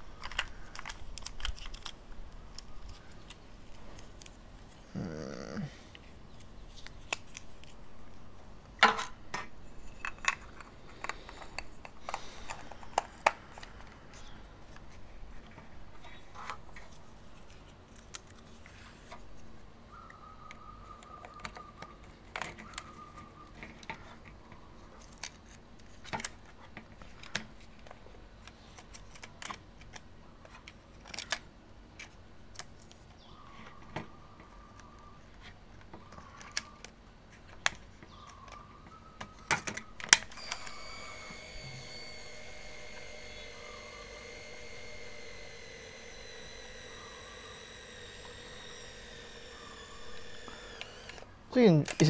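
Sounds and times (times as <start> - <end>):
film cartridge clicks and rustling: 0.2 - 4.4, 6.8 - 7.9, 25.0 - 33.0, 39.5 - 51.2
faint thin steady tones: 40.3 - 51.2.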